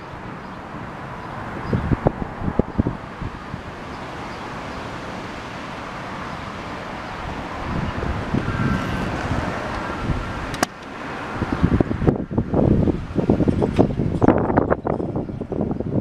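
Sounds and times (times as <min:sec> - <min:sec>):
wind buffeting microphone: 0:00.0 - 0:16.0
sharp click: 0:10.5 - 0:10.9.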